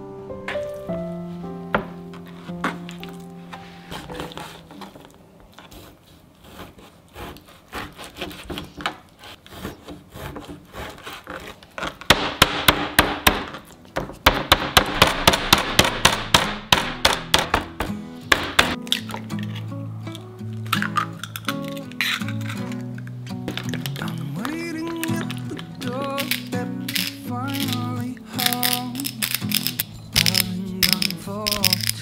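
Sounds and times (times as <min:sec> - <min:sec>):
meat pounder thudding: 0:12.1 - 0:18.8.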